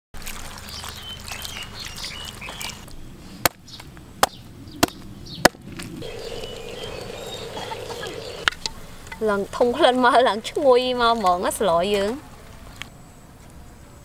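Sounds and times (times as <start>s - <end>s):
water splashing: 0.2s - 2.9s
birds chirping: 0.7s - 3.1s, 6.0s - 9.1s.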